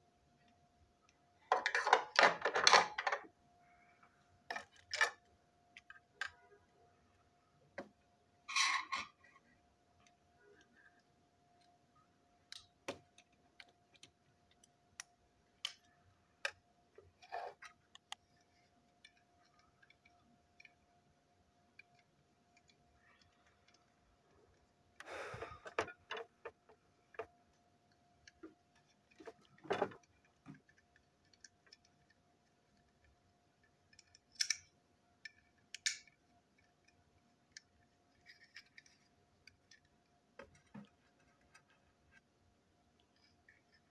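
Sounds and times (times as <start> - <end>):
plastic parts clicking and tapping: 1.0 - 3.3, 4.4 - 6.6, 12.4 - 24.0, 24.6 - 42.3
plastic clatter: 29.2 - 30.7.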